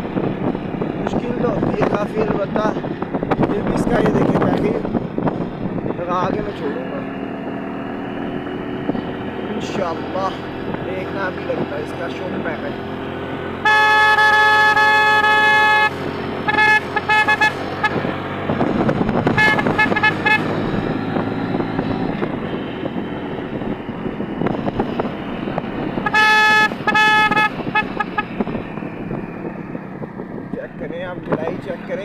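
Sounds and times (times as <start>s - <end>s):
engine and road noise: 0.0s - 32.0s
vehicle horn honking: 13.6s - 18.1s, 19.3s - 20.6s, 26.0s - 28.4s.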